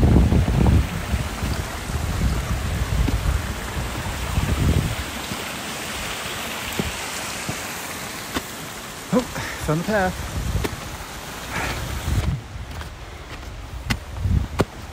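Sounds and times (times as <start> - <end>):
wind rumble on microphone: 0.0 - 5.4, 10.2 - 14.9
stream trickling over rocks: 0.0 - 14.9.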